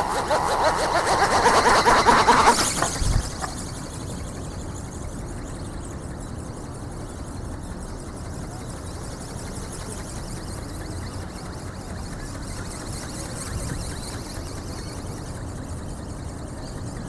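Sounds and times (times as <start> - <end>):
wind buffeting microphone: 0.0 - 4.0.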